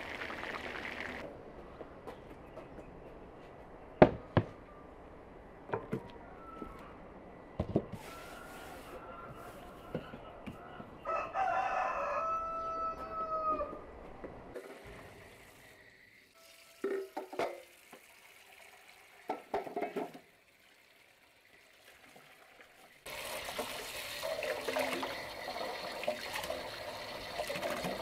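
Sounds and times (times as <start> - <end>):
rooster crowing: 8.0 - 13.9.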